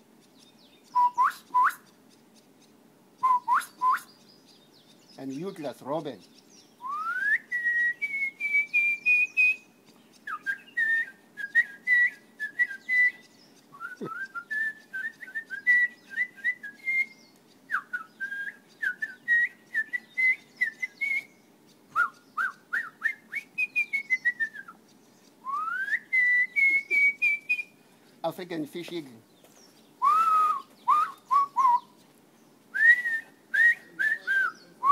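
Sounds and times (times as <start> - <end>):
man whistling bird song: 0.9 - 1.9, 3.2 - 4.2, 6.8 - 24.8, 25.4 - 27.7, 30.0 - 32.0, 32.7 - 34.9.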